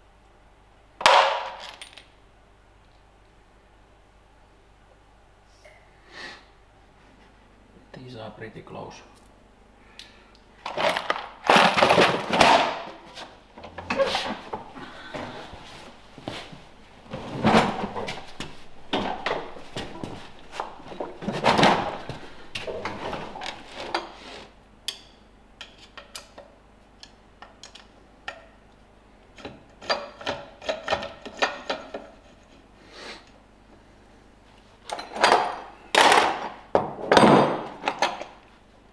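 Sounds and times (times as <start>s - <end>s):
bolts and screws clattering: 1.0s - 2.1s, 10.6s - 12.8s, 17.4s - 24.2s, 29.4s - 32.5s, 34.8s - 38.4s.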